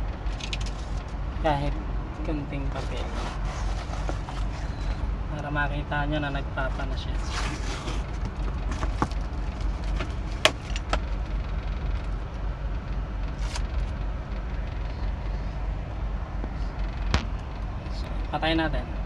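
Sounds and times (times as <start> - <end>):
air-conditioning blower: 0.0 - 19.0
car engine idling: 0.0 - 19.0
cardboard clicks and rustles: 2.9 - 5.0, 7.2 - 11.1.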